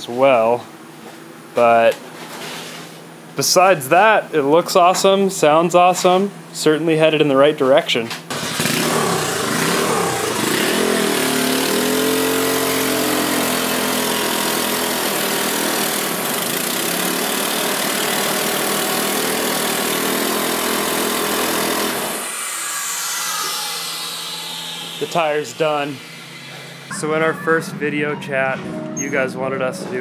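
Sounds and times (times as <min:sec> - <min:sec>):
dirt bike engine revving: 0:08.3 - 0:21.8
high whine falling in pitch: 0:24.4 - 0:30.0.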